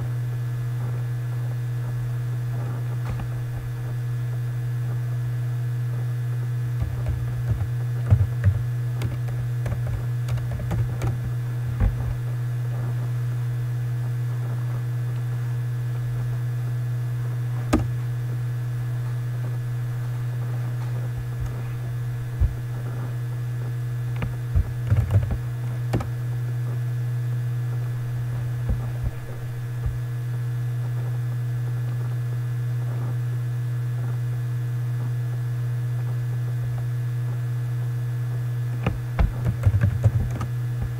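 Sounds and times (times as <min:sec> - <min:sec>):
low electrical hum: 0:00.0 - 0:40.9
keyboard typing clicks: 0:06.8 - 0:12.2, 0:24.1 - 0:26.2, 0:38.8 - 0:40.9.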